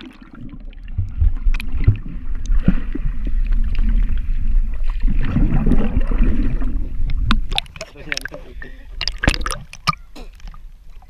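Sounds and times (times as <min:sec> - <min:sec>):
muffled underwater rumble: 0:00.0 - 0:11.0
bubbles popping: 0:05.1 - 0:10.6.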